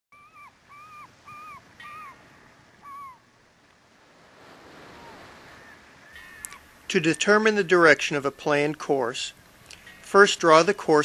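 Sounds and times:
short arched bird calls: 0.1s - 3.3s, 4.9s - 7.4s, 9.4s - 10.2s
surf washing: 0.5s - 11.0s.

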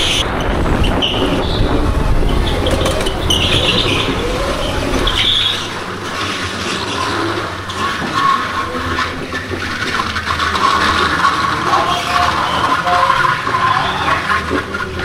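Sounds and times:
go-kart running: 0.0s - 15.0s
tyre squeals: 0.0s - 15.0s.

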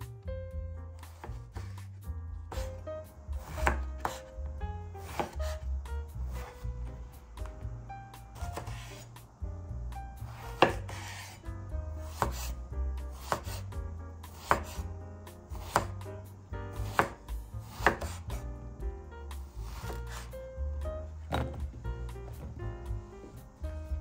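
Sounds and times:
background music: 0.0s - 24.0s
knife chopping on wooden board: 1.0s - 2.8s, 3.4s - 4.3s, 5.0s - 5.6s, 6.3s - 7.5s, 8.4s - 9.1s, 10.3s - 11.4s, 12.0s - 13.7s, 14.3s - 14.9s, 15.5s - 16.1s, 16.7s - 18.4s, 19.6s - 20.4s, 21.3s - 22.6s.

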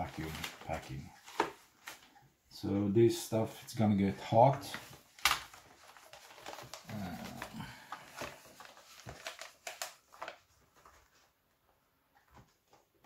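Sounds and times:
plastic film crinkling: 0.0s - 2.2s, 3.7s - 11.4s.

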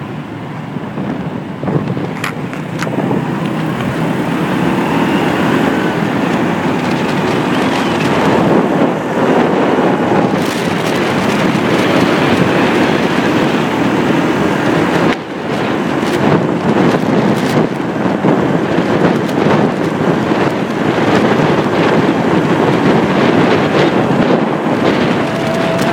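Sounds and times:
road noise: 0.0s - 25.9s
wind rushing over microphone: 0.0s - 25.9s.

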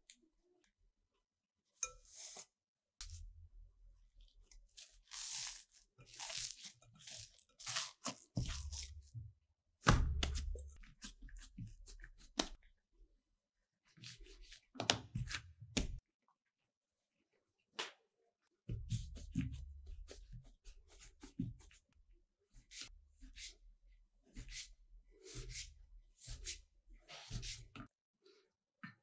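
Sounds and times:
dough tearing and squishing: 4.1s - 12.7s
dough thumps: 9.8s - 10.8s.

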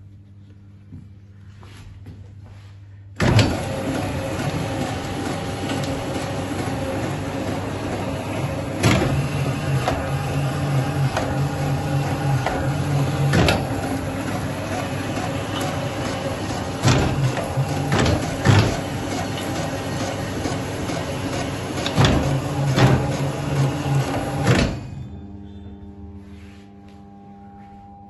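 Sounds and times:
machine motor humming: 3.2s - 25.2s.

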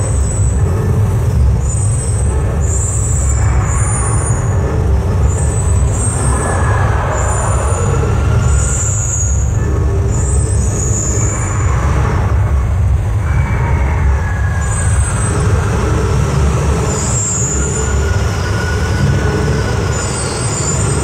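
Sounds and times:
loud low rumble: 0.0s - 19.8s.

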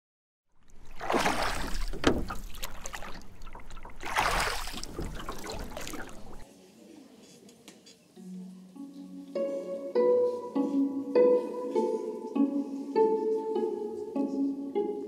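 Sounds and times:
water splashing and washing: 0.5s - 6.5s
small splashy ticks: 0.6s - 6.4s.

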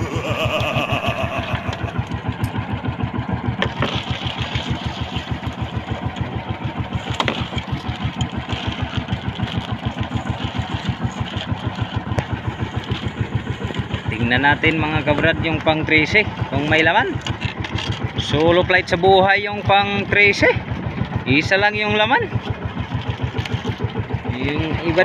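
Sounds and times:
boat engine idling: 0.0s - 25.0s.

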